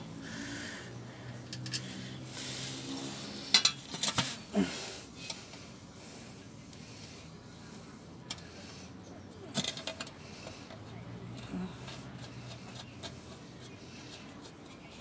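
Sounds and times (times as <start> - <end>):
metal tools clanking: 3.5 - 4.4.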